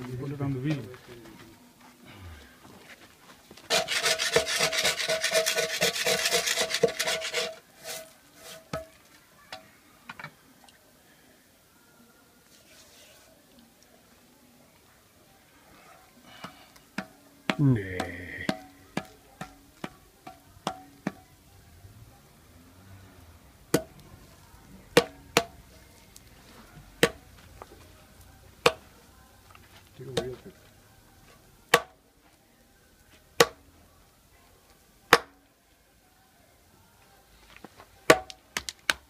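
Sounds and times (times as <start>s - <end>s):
potter's wheel turning: 3.7s - 8.7s.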